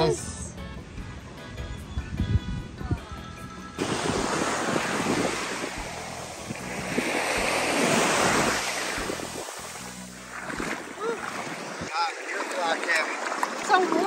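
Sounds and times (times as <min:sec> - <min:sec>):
wind on microphone: 0:00.4 - 0:11.9
ocean surf breaking: 0:03.8 - 0:14.0.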